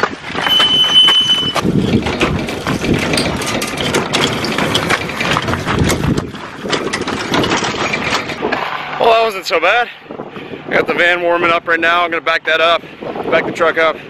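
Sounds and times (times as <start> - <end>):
trailer rolling over gravel: 0.0 - 9.9
trailer brakes squealing: 0.4 - 2.0.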